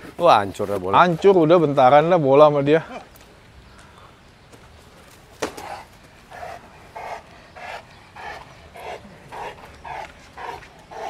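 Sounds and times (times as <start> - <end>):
large dog panting hard: 5.7 - 11.0.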